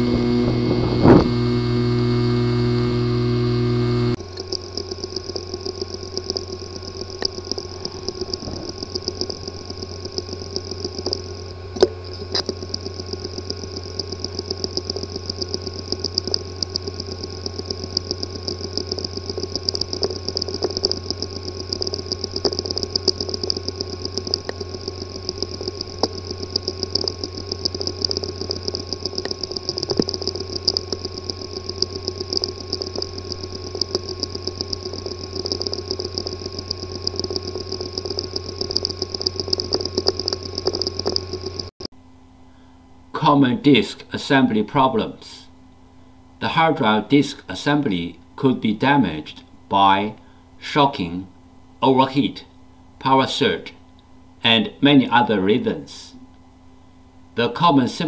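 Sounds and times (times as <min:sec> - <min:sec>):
hard drive ticking: 0:00.0 - 0:41.9
hard drive hum and whine: 0:00.0 - 0:58.0.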